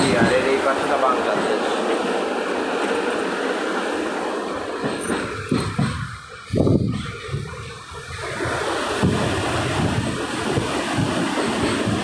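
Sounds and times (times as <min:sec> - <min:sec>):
wheels knocking on track: 0:00.0 - 0:00.7, 0:04.8 - 0:07.7, 0:08.4 - 0:12.0
train carriage rumble and rattle: 0:00.0 - 0:12.0.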